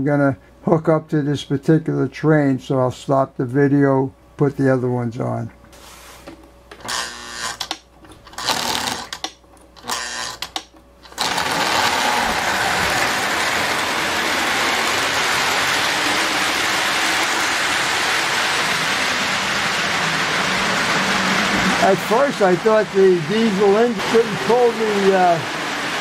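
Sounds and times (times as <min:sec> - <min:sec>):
model train motor whirring: 0:06.8 - 0:19.8
wheels rattling on track: 0:11.6 - 0:26.0.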